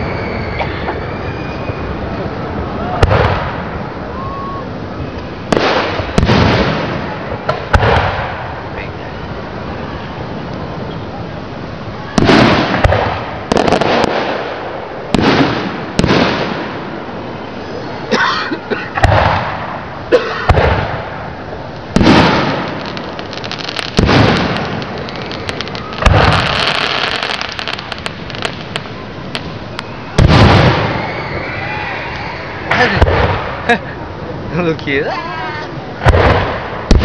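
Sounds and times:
firework crackling: 0:00.0 - 0:37.0
firework shells booming: 0:03.0 - 0:03.9, 0:05.5 - 0:08.8, 0:12.1 - 0:17.2, 0:18.8 - 0:31.4, 0:32.1 - 0:33.7, 0:36.0 - 0:37.0.

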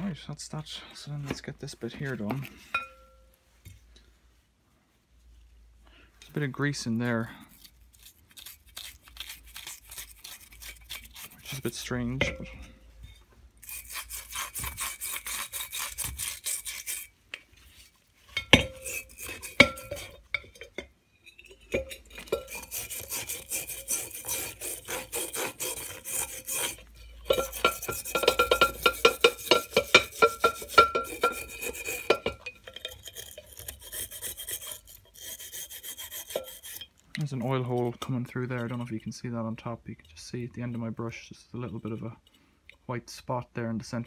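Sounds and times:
brush scrubbing metal: 0:06.3 - 0:12.5, 0:13.6 - 0:20.7, 0:21.6 - 0:41.0.

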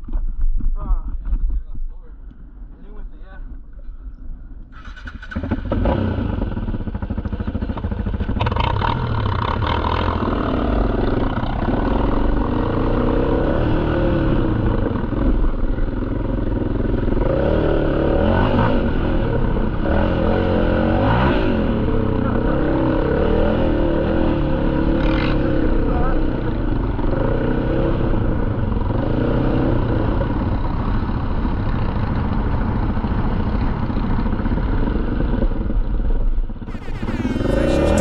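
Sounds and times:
atv engine revving: 0:04.7 - 0:31.9, 0:36.7 - 0:38.0.

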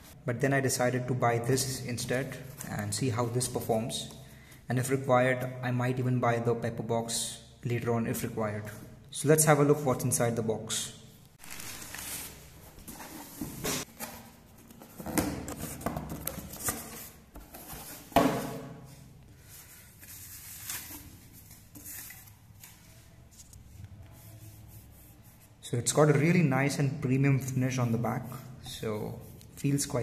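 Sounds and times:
cardboard box rustling and scraping: 0:11.5 - 0:18.2.

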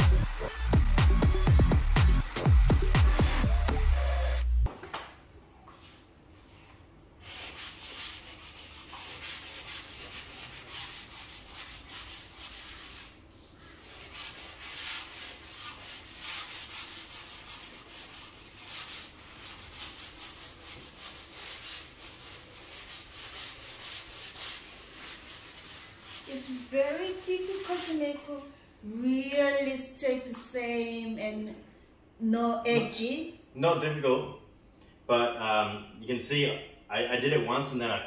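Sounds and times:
sanding block scraping plaster: 0:07.2 - 0:28.3.

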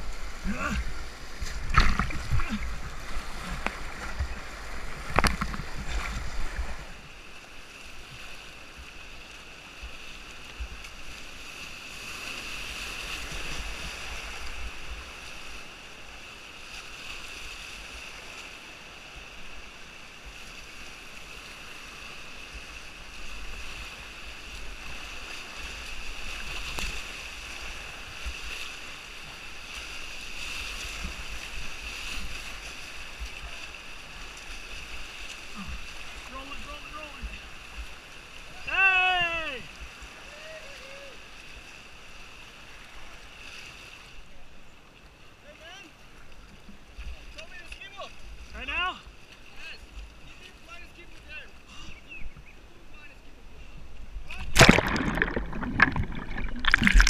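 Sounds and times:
loud water splashes: 0:00.0 - 0:06.9, 0:54.3 - 0:57.0
whitewater rushing: 0:54.4 - 0:57.0.

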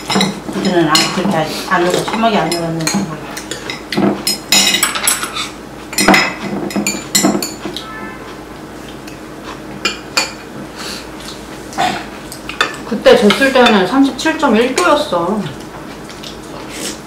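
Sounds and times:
cutlery clinking against bowls: 0:00.0 - 0:08.0, 0:09.8 - 0:10.5, 0:11.2 - 0:13.9.

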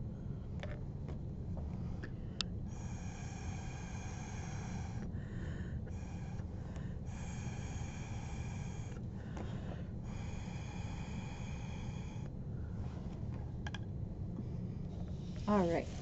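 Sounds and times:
breath blown through a straw: 0:02.7 - 0:05.1, 0:05.9 - 0:09.0.

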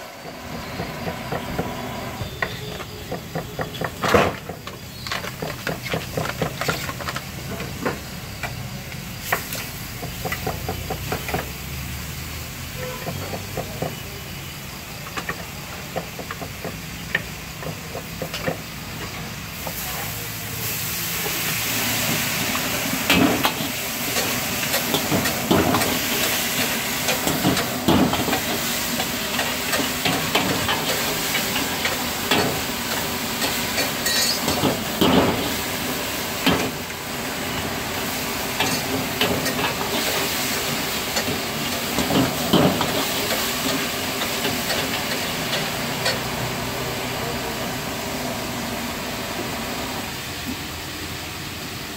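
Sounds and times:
food sizzling in a wok: 0:00.0 - 0:51.9
ladle scraping and knocking wok: 0:22.1 - 0:46.5.

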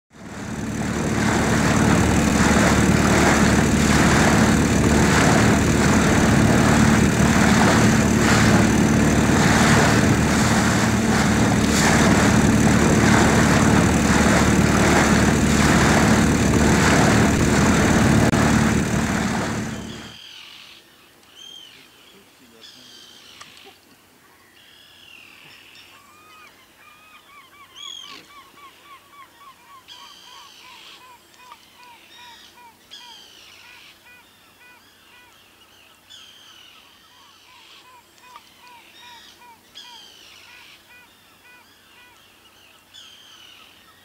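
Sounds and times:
boat engine running: 0:00.1 - 0:20.2.

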